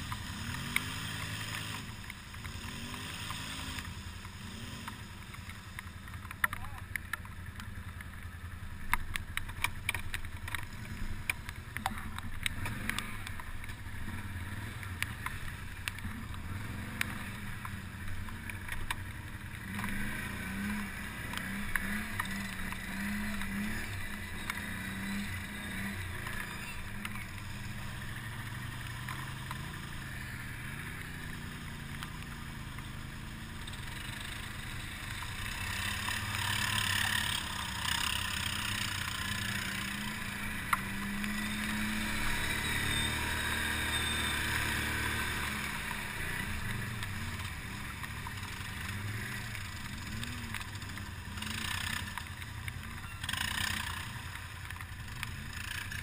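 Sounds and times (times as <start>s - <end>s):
sharp clicks and knocks: 0.0s - 13.8s
atv engine running: 0.0s - 56.0s.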